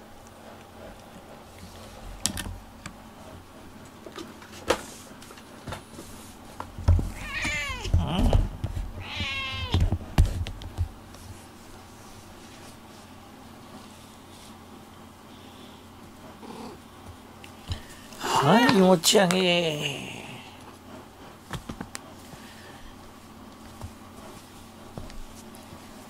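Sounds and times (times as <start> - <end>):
cat meowing: 7.1 - 8.2, 9.0 - 9.8.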